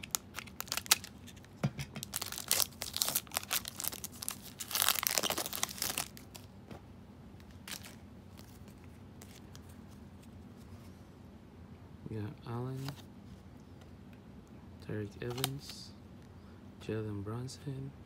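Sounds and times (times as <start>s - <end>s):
foil wrapper crinkling and tearing: 0.0s - 6.5s, 7.6s - 8.6s.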